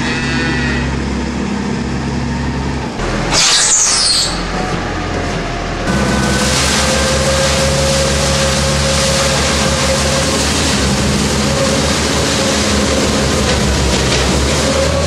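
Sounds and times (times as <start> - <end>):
blower whine over low drone: 0.0 - 15.0
straw blower rushing air: 5.9 - 15.0.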